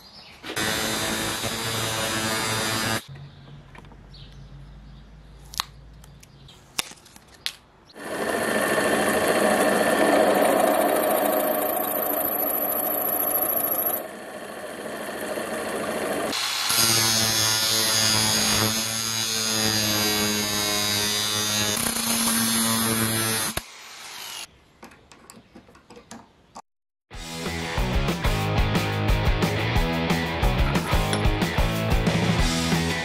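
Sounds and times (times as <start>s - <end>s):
angle grinder cutting steel: 0.5s - 3.1s, 8.0s - 24.5s.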